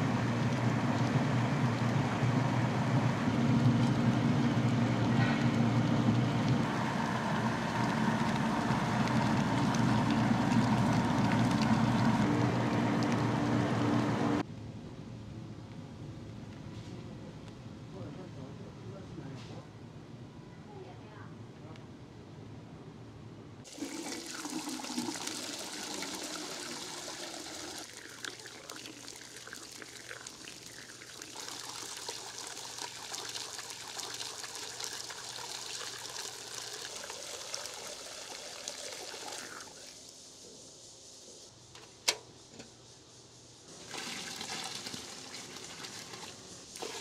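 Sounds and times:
liquid pouring into metal vat: 0:06.6 - 0:13.6, 0:23.7 - 0:40.0, 0:43.8 - 0:47.0
sharp click: 0:41.7 - 0:42.7.

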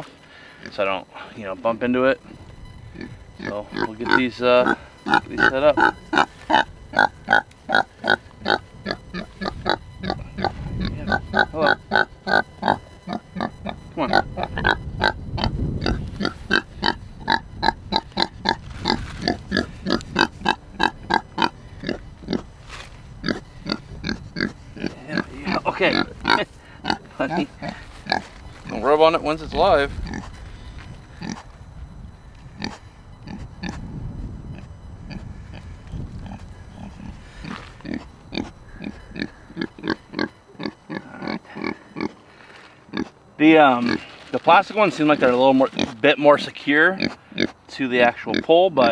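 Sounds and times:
pig grunting: 0:02.9 - 0:22.5, 0:23.2 - 0:28.8, 0:31.2 - 0:31.4, 0:34.5 - 0:42.2, 0:42.9 - 0:43.1, 0:46.9 - 0:47.6.

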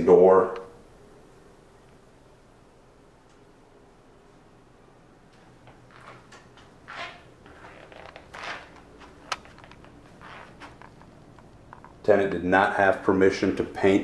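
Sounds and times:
rustling and shuffling: 0:05.2 - 0:12.2.

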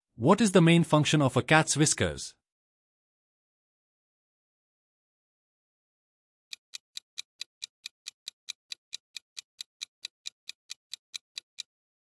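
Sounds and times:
countdown timer ticking: 0:06.5 - 0:11.7.

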